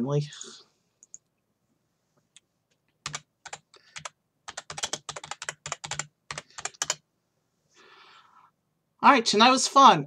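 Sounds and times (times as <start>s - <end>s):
keyboard typing: 1.0s - 1.3s, 2.9s - 7.0s.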